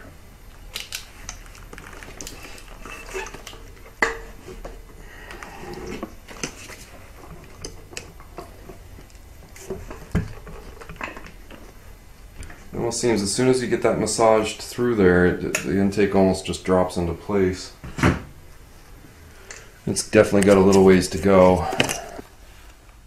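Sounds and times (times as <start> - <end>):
metal parts clinking and knocking: 21.7 - 22.2.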